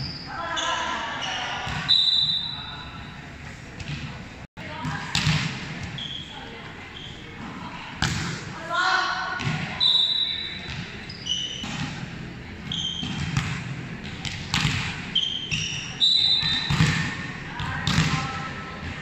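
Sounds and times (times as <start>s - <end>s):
sneaker squeaks on court: 0.0s - 2.6s, 5.9s - 6.3s, 9.9s - 11.8s, 12.6s - 13.5s, 15.1s - 17.0s
players' voices: 0.2s - 19.0s.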